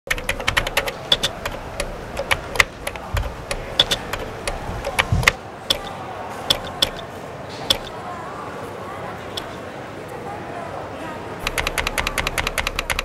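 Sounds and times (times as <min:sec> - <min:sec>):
computer keyboard typing: 0:00.0 - 0:05.9, 0:06.5 - 0:07.1, 0:07.7 - 0:08.0, 0:09.4 - 0:09.6, 0:11.4 - 0:13.0.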